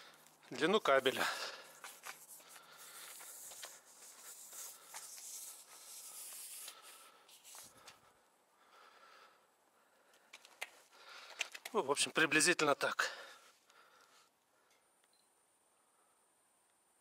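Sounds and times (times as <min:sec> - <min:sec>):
power cable rubbing and handling: 0:01.8 - 0:08.0.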